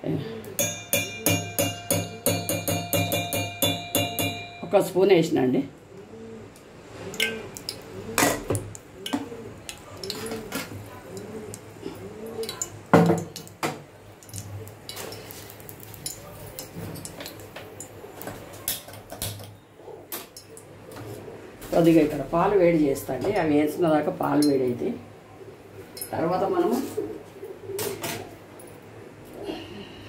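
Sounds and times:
metal utensils clinking: 0.6s - 4.9s, 7.2s - 11.6s, 14.2s - 19.5s.

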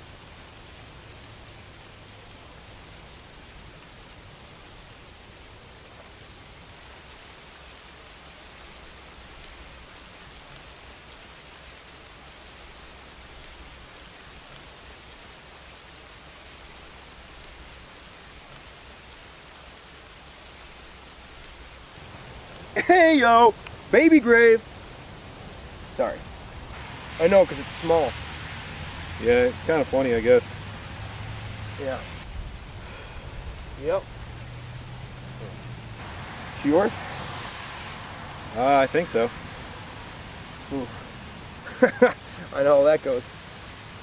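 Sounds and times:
light rain hissing: 0.0s - 44.0s
low rumble: 30.6s - 41.6s.

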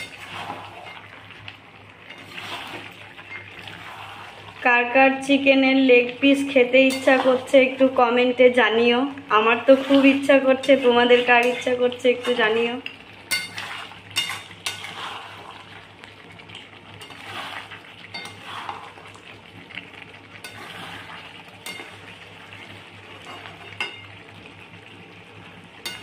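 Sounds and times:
spatula scraping food in pan: 0.0s - 1.3s, 2.0s - 4.6s, 6.8s - 7.7s, 9.5s - 15.9s, 17.0s - 19.2s, 20.4s - 24.1s
food sizzling: 0.0s - 26.0s.

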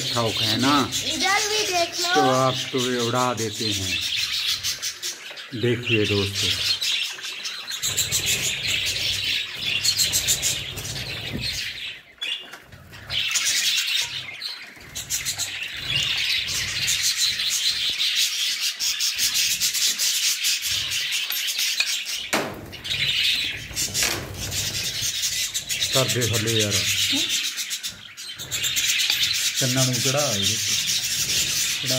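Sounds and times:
budgerigars chirping: 0.0s - 31.9s
scratchy rubbing noise: 28.5s - 31.9s.

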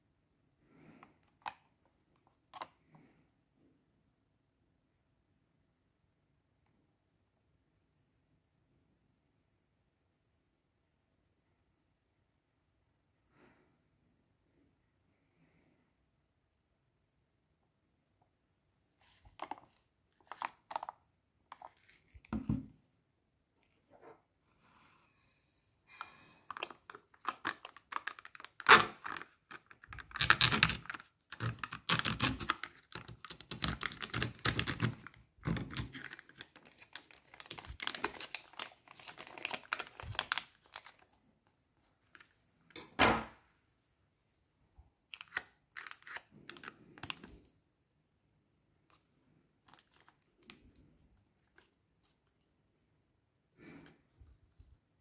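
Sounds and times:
plastic seal crinkling and tearing: 19.0s - 20.9s, 26.0s - 41.2s, 45.1s - 47.4s, 49.6s - 50.8s.

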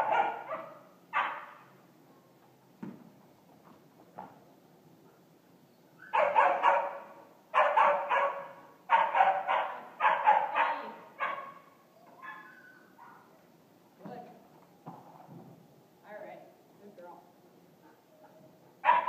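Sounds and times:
dog barking: 0.0s - 1.6s, 6.1s - 13.3s, 17.8s - 19.0s.

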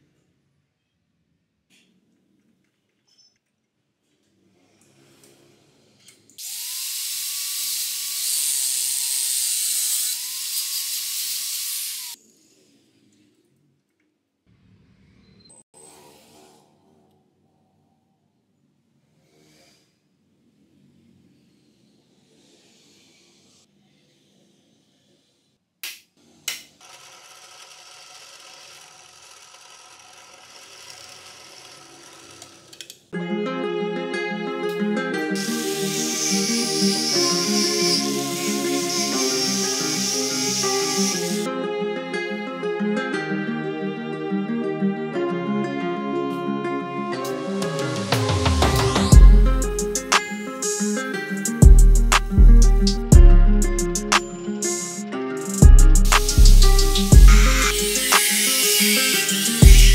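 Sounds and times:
angle grinder grinding steel: 6.4s - 12.2s, 26.8s - 32.8s, 35.4s - 41.5s, 47.2s - 50.3s, 56.0s - 59.9s.

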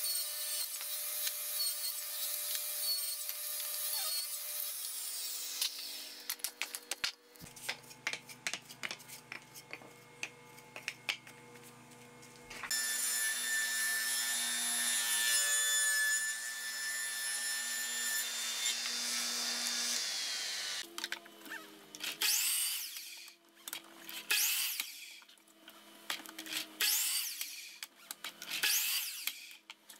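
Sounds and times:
table saw whining: 0.0s - 6.2s, 12.6s - 20.8s.

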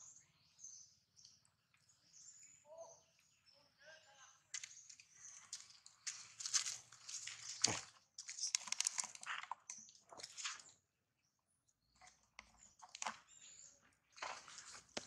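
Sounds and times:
dry leaves crunching underfoot: 6.1s - 8.5s.

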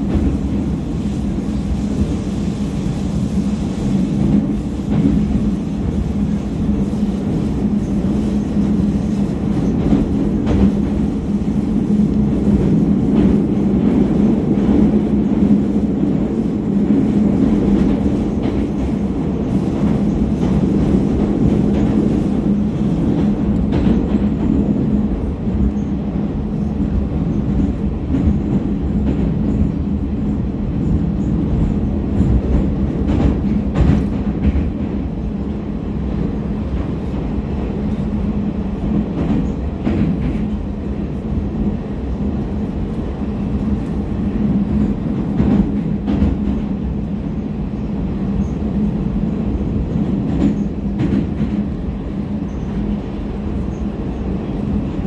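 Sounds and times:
metro wheels rumbling on rails: 0.0s - 55.0s.

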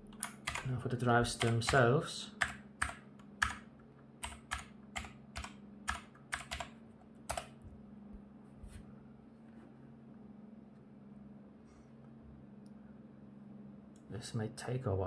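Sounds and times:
computer keyboard typing: 0.0s - 7.6s
low steady hum: 0.0s - 15.0s.

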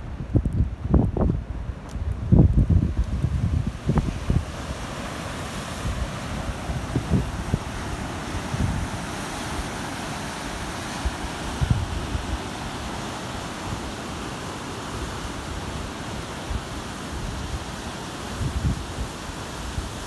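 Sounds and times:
wind buffeting microphone: 0.0s - 9.8s, 10.4s - 12.8s, 18.3s - 20.0s
surf breaking over rocks: 1.8s - 20.0s.

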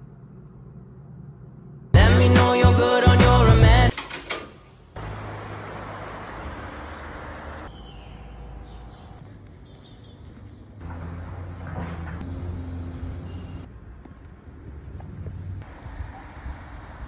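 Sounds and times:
street ambience hiss: 4.6s - 7.6s, 13.7s - 17.0s.

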